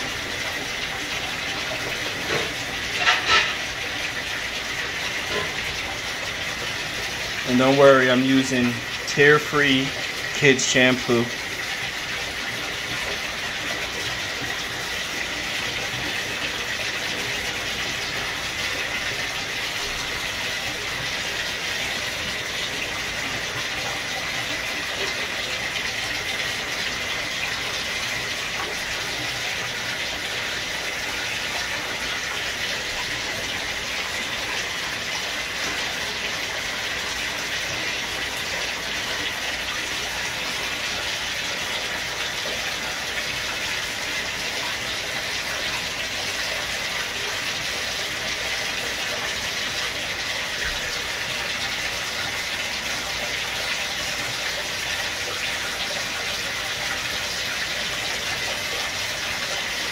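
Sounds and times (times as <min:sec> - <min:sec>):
water running from a bathtub tap: 0:00.0 - 0:59.9.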